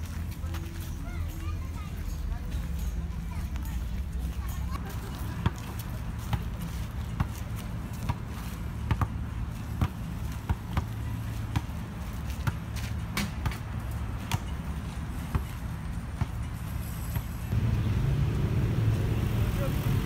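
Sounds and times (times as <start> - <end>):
basketball bouncing on pavement: 5.4 - 16.5.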